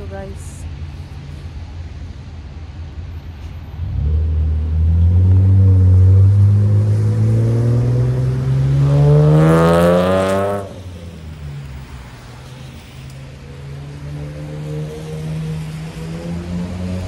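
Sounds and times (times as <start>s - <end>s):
vehicle engine accelerating: 3.7s - 17.0s.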